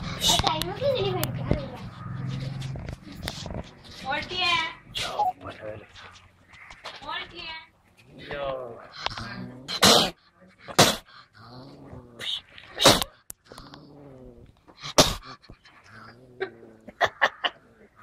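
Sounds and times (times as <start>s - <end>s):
civet growling: 8.0s - 18.0s.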